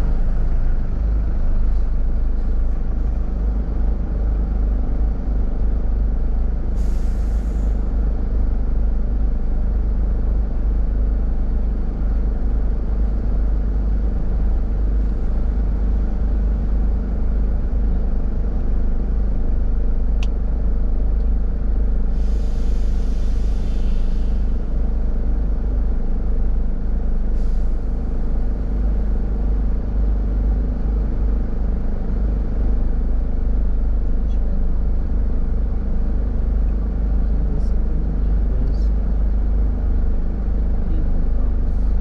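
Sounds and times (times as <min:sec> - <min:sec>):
engine and road rumble: 0:00.0 - 0:42.0
hiss: 0:06.8 - 0:07.8, 0:22.1 - 0:24.7.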